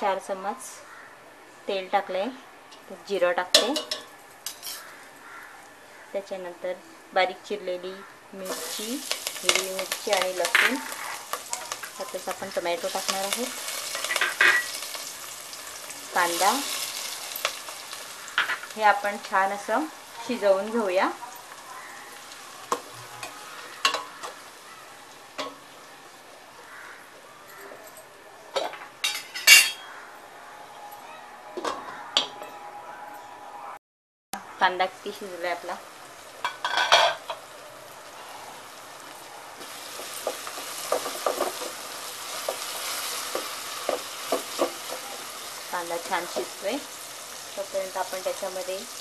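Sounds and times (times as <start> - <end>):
vegetables sizzling in hot oil: 8.4 - 26.8, 34.9 - 49.0.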